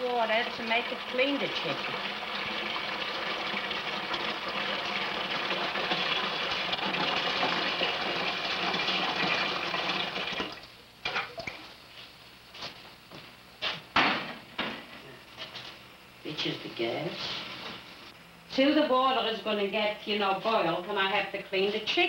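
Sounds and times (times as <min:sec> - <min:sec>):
tap water filling metal pot: 0:00.0 - 0:11.6.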